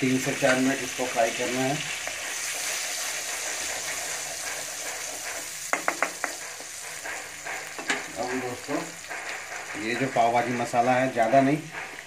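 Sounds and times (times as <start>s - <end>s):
paste sizzling in butter: 0.0s - 12.0s
wooden spatula stirring: 0.0s - 12.0s
spatula knocking against pan: 5.6s - 11.1s.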